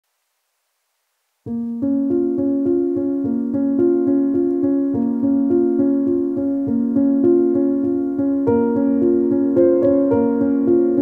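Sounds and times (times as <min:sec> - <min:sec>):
keyboard melody: 0:01.5 - 0:11.0.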